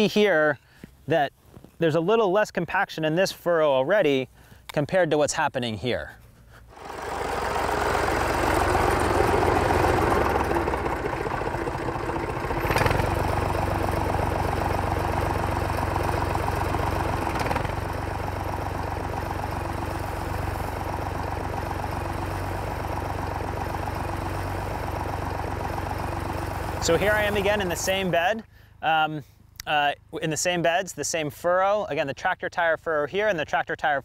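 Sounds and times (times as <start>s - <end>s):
tractor engine running: 6.6s - 28.5s.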